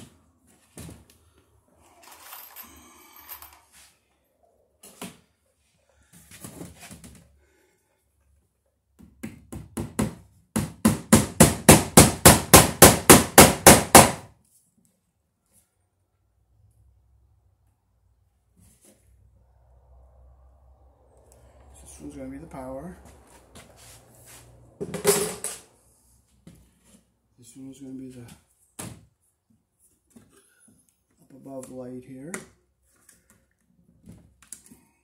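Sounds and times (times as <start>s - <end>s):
hammer striking wood: 9.2s - 14.3s.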